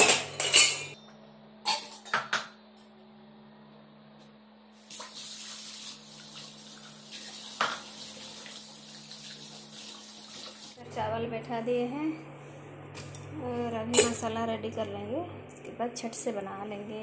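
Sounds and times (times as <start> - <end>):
tap water running into sink: 4.8 - 10.8.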